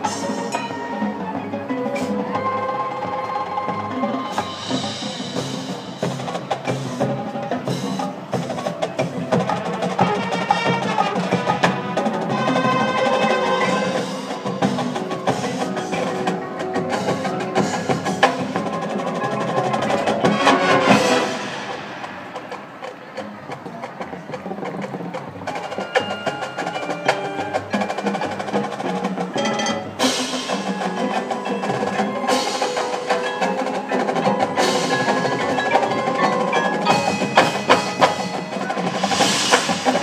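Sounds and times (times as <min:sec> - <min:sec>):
mallet percussion and drums: 0:00.0 - 0:40.0
marching band playing: 0:00.0 - 0:40.0.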